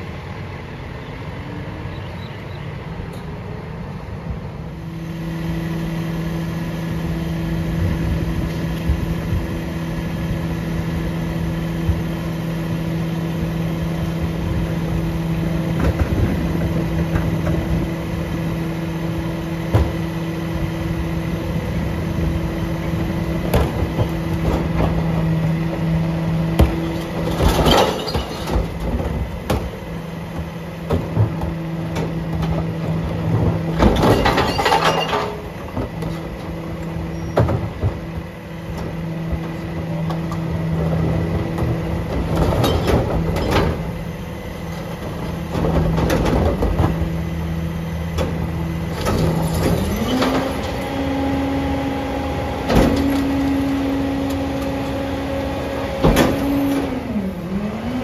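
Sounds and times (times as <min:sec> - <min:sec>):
garbage truck idling hum: 0:00.0 - 0:58.0
recycling crashing into hopper: 0:23.4 - 0:38.3, 0:55.8 - 0:57.4.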